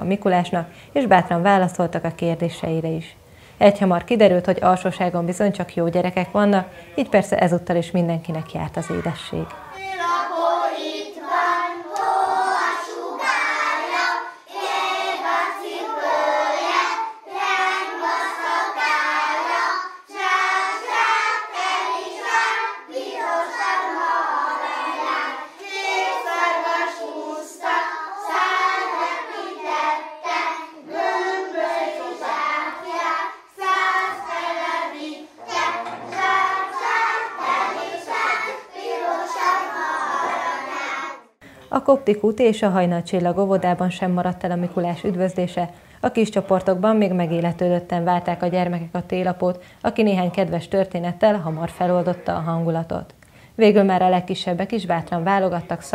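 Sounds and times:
young children singing together: 8.9 - 41.4.

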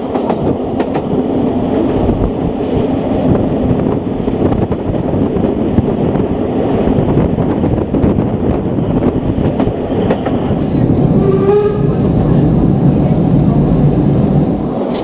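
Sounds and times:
train coaches rumbling and rattling: 0.0 - 15.0.

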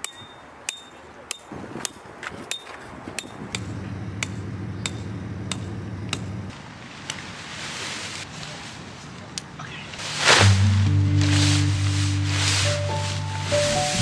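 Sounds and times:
low hum: 3.6 - 6.5, 10.3 - 14.0.

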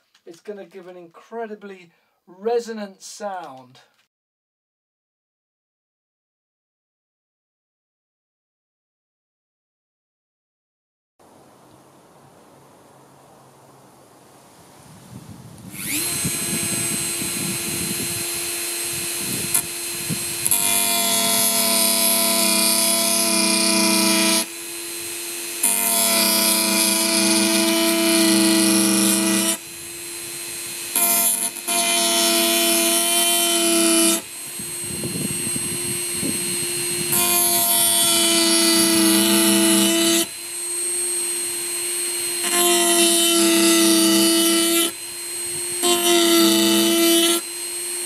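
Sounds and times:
rotary tool sanding bone: 15.7 - 48.0.

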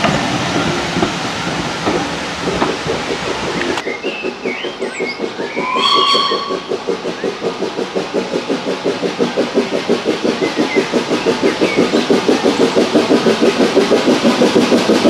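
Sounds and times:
steam locomotive chuffing: 0.0 - 15.0
faint bird chirps: 3.8 - 7.4
steam locomotive whistle: 5.4 - 6.9.

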